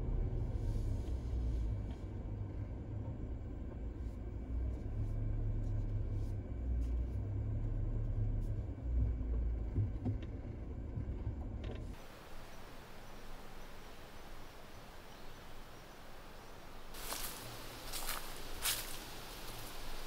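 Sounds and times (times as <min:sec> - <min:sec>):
low engine and road rumble: 0:00.0 - 0:20.0
outdoor hiss: 0:11.9 - 0:20.0.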